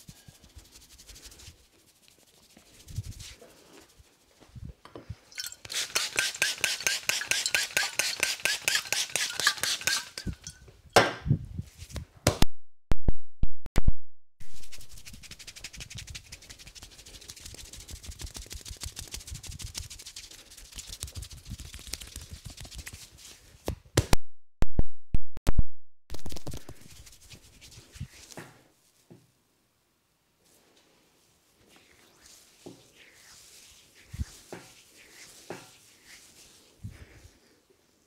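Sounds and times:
rubbing and patting hair: 0.0s - 4.7s, 5.7s - 10.2s, 14.4s - 23.6s, 26.1s - 29.1s, 30.4s - 37.5s
spray bottle squirts: 5.4s - 10.4s.

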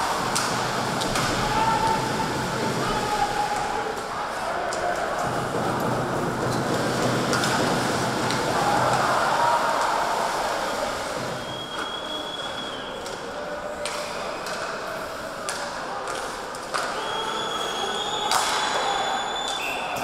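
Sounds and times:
skates scraping ice: 4.6s - 9.5s.

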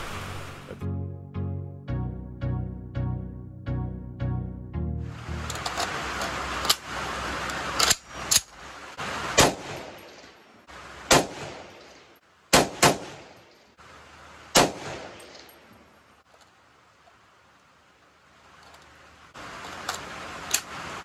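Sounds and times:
rifle shots: 9.3s - 10.4s, 11.1s - 13.4s, 14.6s - 15.5s.

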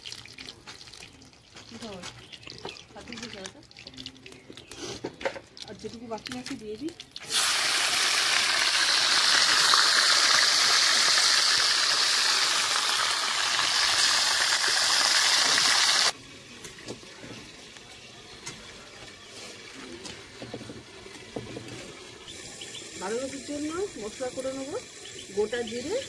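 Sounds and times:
faint background sounds: 0.0s - 7.3s, 16.1s - 26.0s
fish frying in hot oil: 5.4s - 26.0s.

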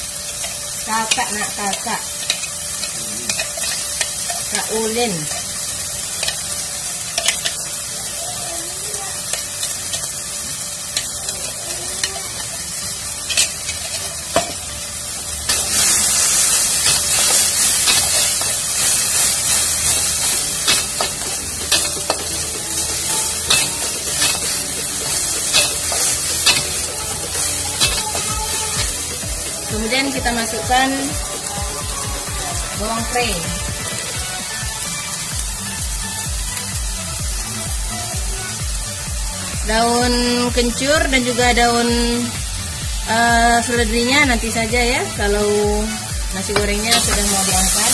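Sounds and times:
spice paste sizzling in oil: 0.0s - 47.9s
metal spatula scraping a wok: 2.2s - 5.5s, 13.2s - 14.6s, 15.5s - 22.4s, 23.0s - 28.9s.

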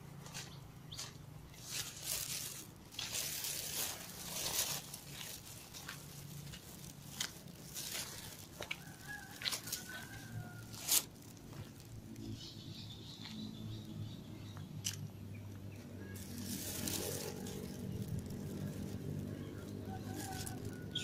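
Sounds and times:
rustling and crackling: 0.3s - 12.3s, 16.1s - 21.0s
distant rooster crowing: 8.1s - 11.1s, 19.2s - 21.0s.

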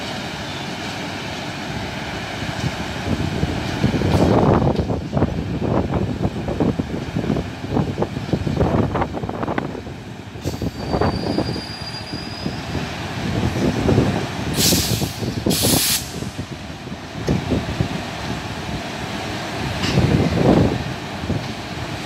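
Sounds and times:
train rumbling on rails: 0.0s - 22.0s
wind buffeting microphone: 2.4s - 22.0s
faint high squeal: 10.6s - 12.8s
short hisses: 14.6s - 16.4s.

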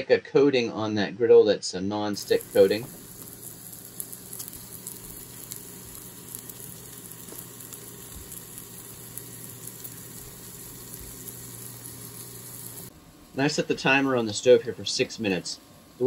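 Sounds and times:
fat spitting and crackling: 2.2s - 12.9s
meat sizzling on a grill: 2.2s - 15.5s
steady low hum: 2.2s - 16.0s.

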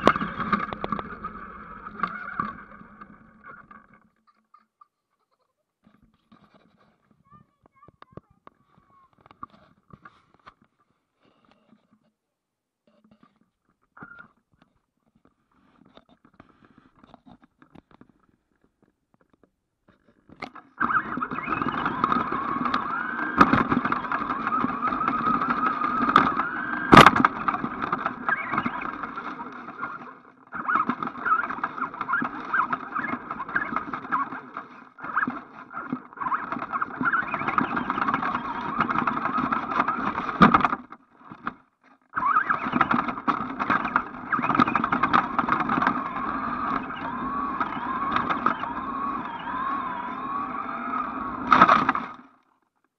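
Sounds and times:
toy truck motor whining: 0.0s - 4.0s, 20.5s - 41.5s, 42.1s - 52.4s
tyres rattling on tarmac: 42.3s - 52.0s.

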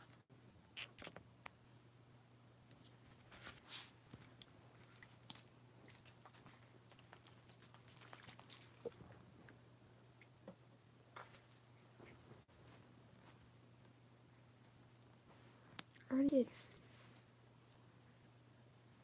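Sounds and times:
hands rustling: 2.8s - 8.8s.

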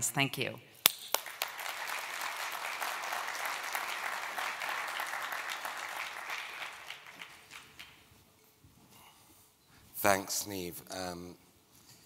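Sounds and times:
audience applauding: 1.1s - 8.1s.

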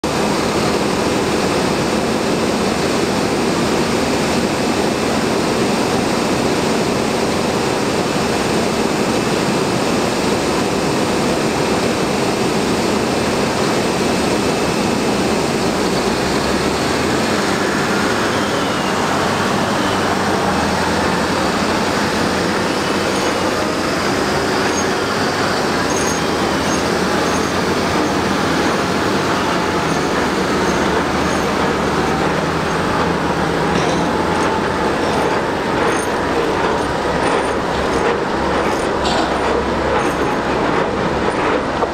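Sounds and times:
diesel truck engine running: 0.0s - 41.9s.

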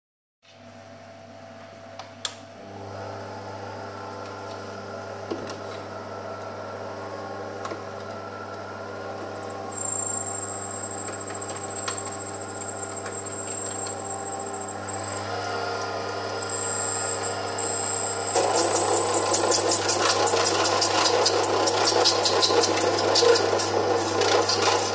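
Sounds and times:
lathe motor running: 2.6s - 24.9s
high-pitched cutting whine: 16.3s - 24.9s.

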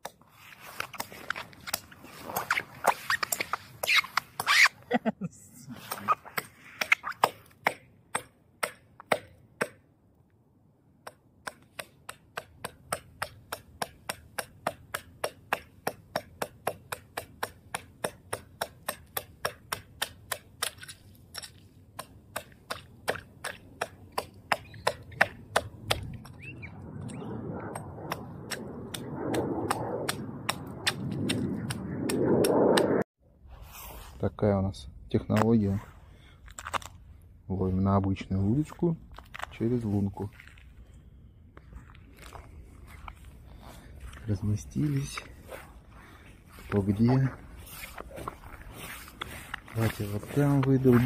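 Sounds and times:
ice chisel striking ice: 11.0s - 26.1s.

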